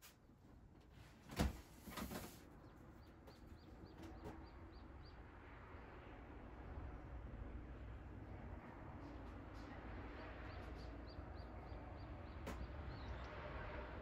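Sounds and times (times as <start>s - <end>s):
faint low hum: 0.1s - 14.0s
bird chirping: 2.5s - 5.4s, 10.1s - 13.9s.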